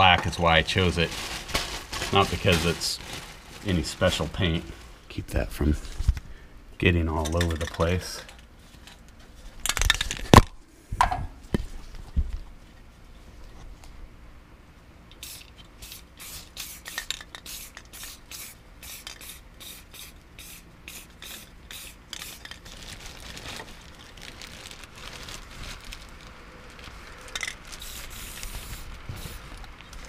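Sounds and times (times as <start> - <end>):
aerosol can spraying: 15.2 - 22.4, 27.8 - 29.4.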